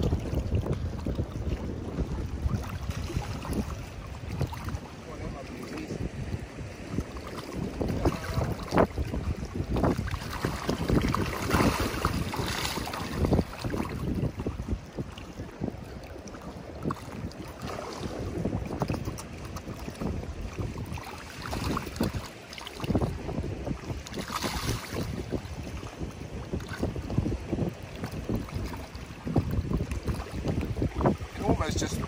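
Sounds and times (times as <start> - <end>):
wind buffeting microphone: 0.0 - 32.0
fish splashing at water surface: 7.0 - 13.8.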